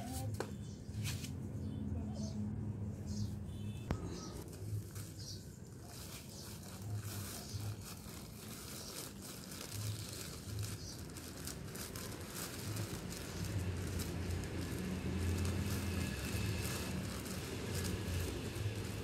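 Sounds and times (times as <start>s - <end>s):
soil crackling: 3.8s - 19.0s
plastic bag crinkling: 3.9s - 19.0s.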